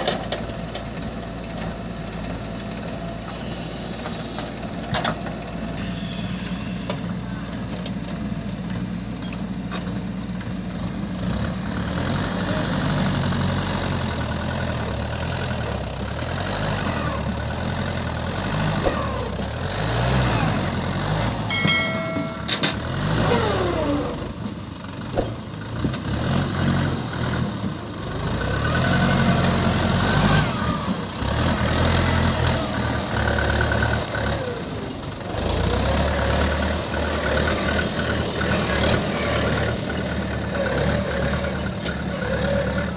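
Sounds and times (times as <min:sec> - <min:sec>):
diesel engines running: 0:00.0 - 0:42.9
short chime: 0:21.5 - 0:23.0.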